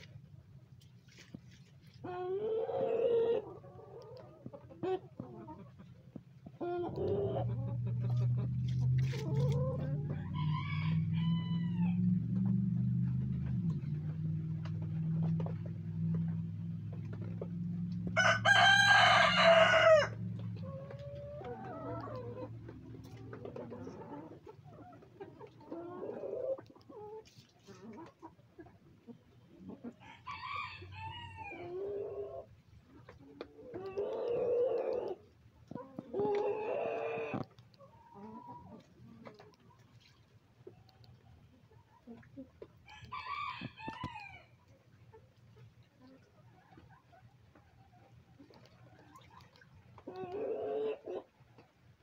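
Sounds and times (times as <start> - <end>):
low steady hum: 0.0 - 33.7
hens calling and clucking: 0.0 - 52.0
rooster crowing: 10.2 - 12.0, 18.2 - 20.2, 30.0 - 31.6.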